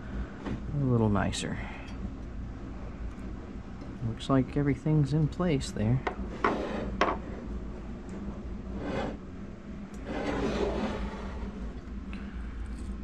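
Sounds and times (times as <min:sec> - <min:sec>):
metal scraping on wooden desk: 0:06.3 - 0:07.3, 0:08.7 - 0:09.2, 0:10.0 - 0:11.7.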